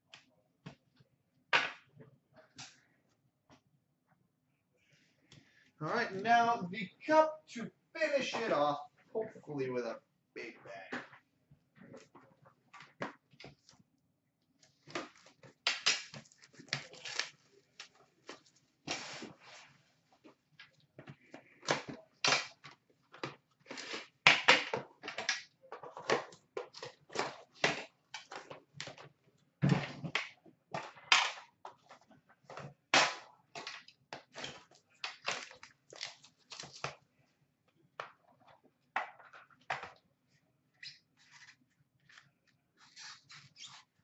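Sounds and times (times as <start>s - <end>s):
plastic packaging crinkling: 16.1s - 19.2s.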